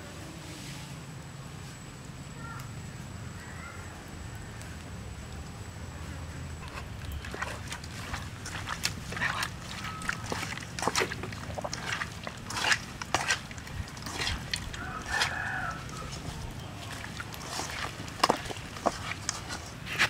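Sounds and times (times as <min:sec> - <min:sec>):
hand squelching and slapping food: 0:06.6 - 0:20.0.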